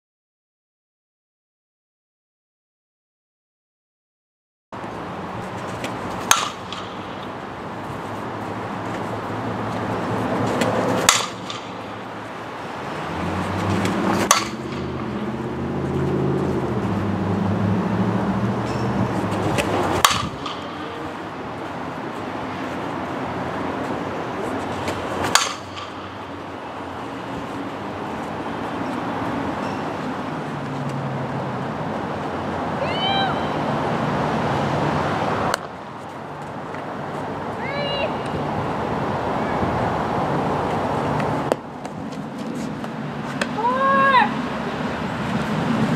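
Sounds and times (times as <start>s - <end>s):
outdoor background noise: 4.8s - 45.9s
softball bat hitting ball: 5.8s - 7.4s, 10.5s - 12.2s, 13.7s - 15.6s, 18.7s - 21.2s, 24.8s - 26.3s.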